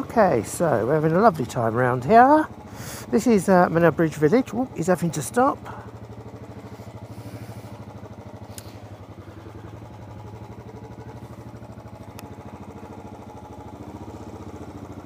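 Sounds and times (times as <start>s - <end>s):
motorcycle engine running: 0.0s - 15.0s
faint ticks: 8.5s - 8.8s, 12.1s - 12.4s.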